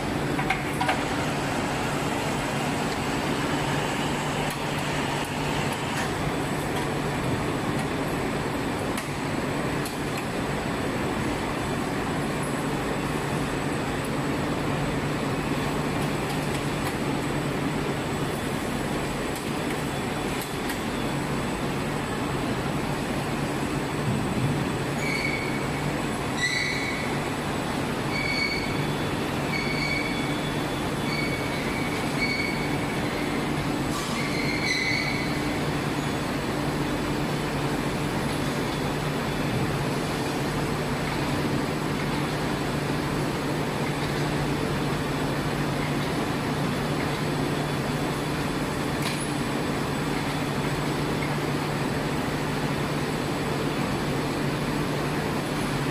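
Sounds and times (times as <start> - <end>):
factory machinery hum: 0.0 - 55.9.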